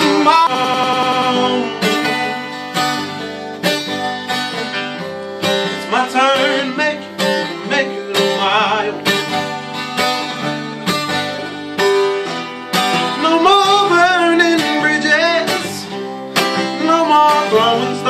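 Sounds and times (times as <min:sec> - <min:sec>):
man singing: 0:00.0 - 0:02.6, 0:05.6 - 0:09.5, 0:12.9 - 0:18.0
acoustic guitar strumming: 0:00.0 - 0:18.0.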